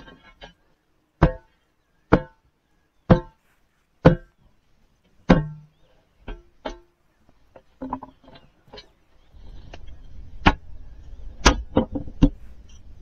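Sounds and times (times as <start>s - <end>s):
ringing metal knocks: 1.2s - 2.5s, 3.1s - 3.4s, 4.0s - 4.4s, 5.2s - 7.0s.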